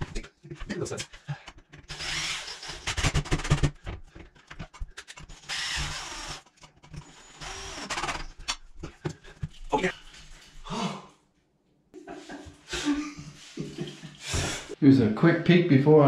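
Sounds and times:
cordless drill running: 1.9 - 3.6, 5.3 - 6.4, 7.0 - 8.3.

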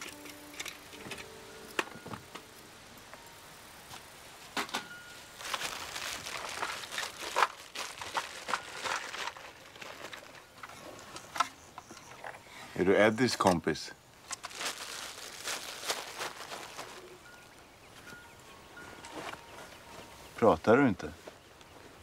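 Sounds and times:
quiet rustling: 0.0 - 22.0.

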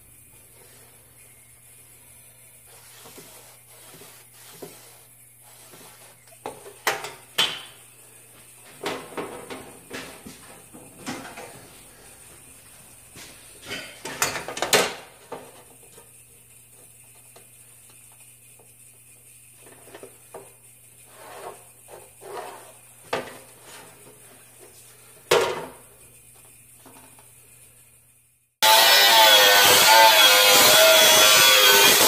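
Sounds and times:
scraping along metal square: 2.7 - 6.2
angle grinder cutting sheet metal: 28.6 - 32.0.

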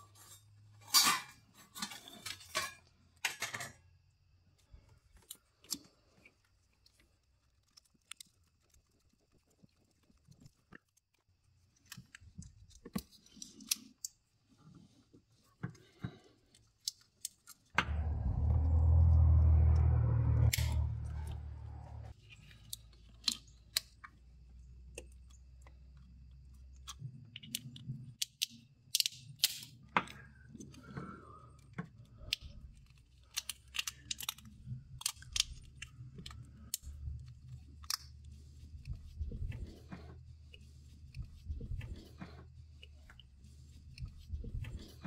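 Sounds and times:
small clicks and crackles: 0.1 - 17.8, 22.1 - 45.0
plastic wire loom being handled: 4.6 - 17.8
loud low rumble: 17.8 - 22.1.

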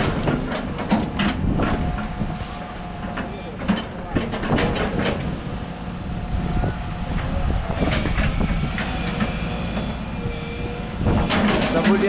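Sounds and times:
metal clanks: 0.0 - 5.4
backhoe running: 0.0 - 12.0
metal and hydraulic squeals: 1.8 - 12.0.

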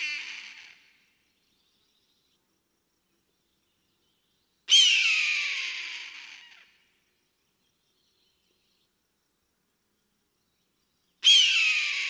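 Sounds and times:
eagle scream: 0.0 - 0.9, 4.7 - 6.8, 11.2 - 12.0.

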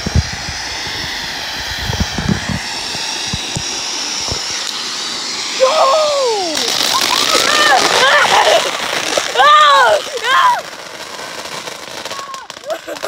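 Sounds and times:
firework crackling pops: 0.0 - 13.0
firework fountain hissing: 0.0 - 13.0
high-pitched cry: 5.6 - 10.7.

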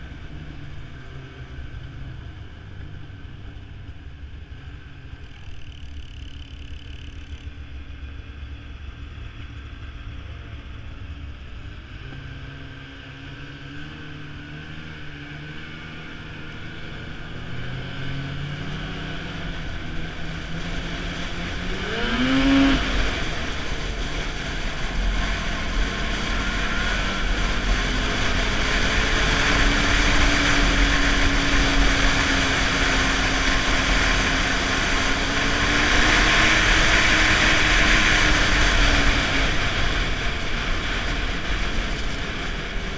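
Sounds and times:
snowmobile engine revving: 11.8 - 42.9.

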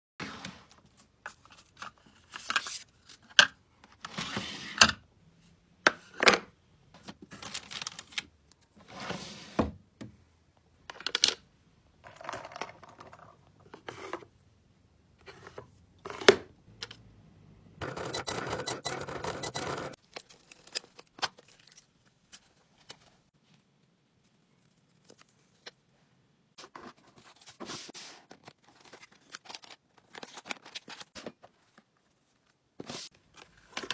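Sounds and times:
packing material rustling: 7.3 - 8.3.

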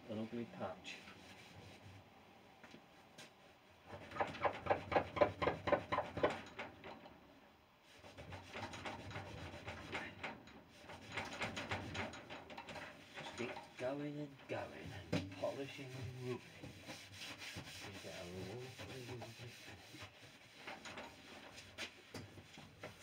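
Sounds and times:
cloth rubbing on wooden door: 0.9 - 2.1, 12.9 - 23.0.

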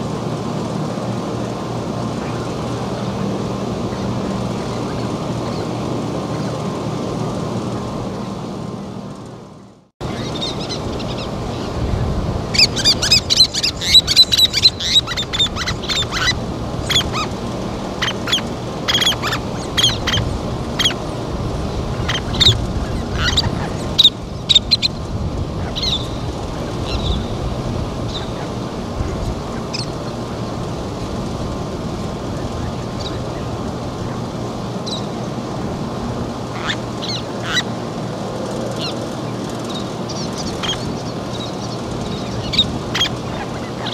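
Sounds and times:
steady background noise: 0.0 - 43.9
terns chirping: 10.0 - 21.2, 21.9 - 31.2, 36.5 - 37.8, 38.8 - 43.9.

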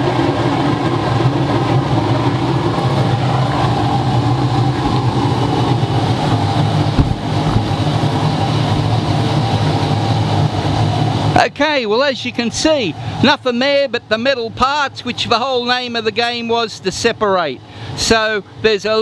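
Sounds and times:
burner flame roaring: 0.0 - 11.7
low steady hum: 0.0 - 18.8
short knock: 6.9 - 7.8.

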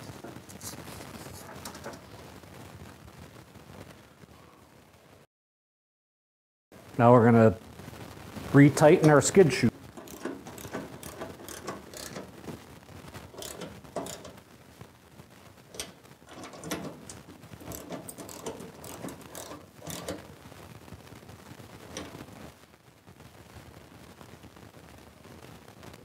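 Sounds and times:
ratchet wrench clicking: 10.0 - 12.3, 13.4 - 14.3, 15.7 - 20.2.

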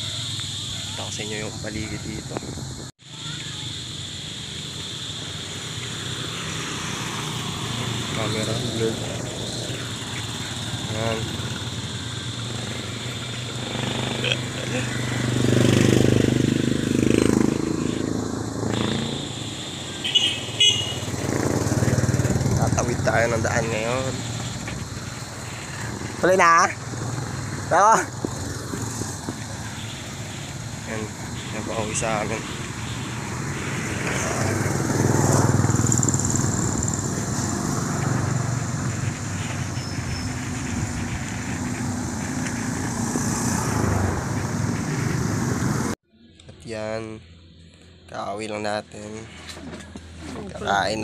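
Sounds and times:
vehicle passing: 3.7 - 46.0.

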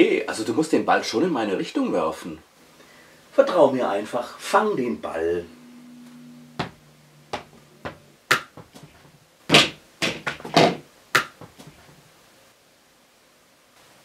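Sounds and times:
small ball bouncing: 6.6 - 11.8.

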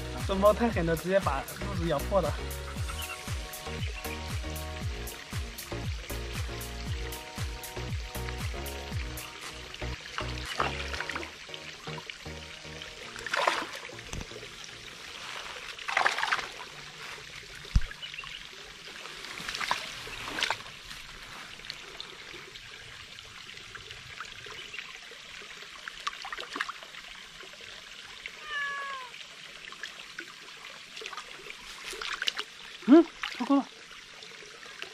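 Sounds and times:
faint trickle of water: 7.8 - 34.9
cat meowing: 28.4 - 29.2.

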